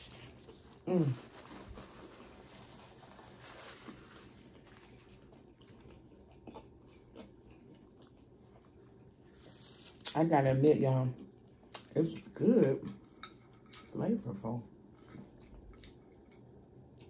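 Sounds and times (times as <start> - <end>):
chewing food: 3.8 - 10.2, 14.6 - 17.0.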